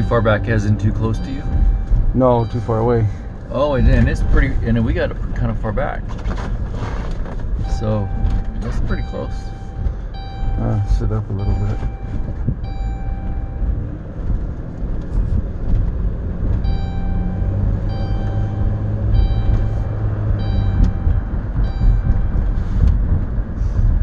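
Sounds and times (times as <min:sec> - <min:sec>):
high beeps: 0:00.0 - 0:04.9, 0:07.7 - 0:13.7, 0:16.6 - 0:22.6
engine and road rumble: 0:00.0 - 0:24.0.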